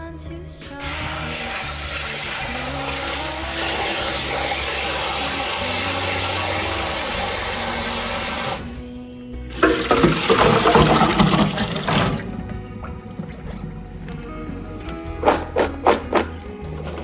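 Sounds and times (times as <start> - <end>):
water spraying into bowl: 0.6 - 8.8, 9.5 - 12.4.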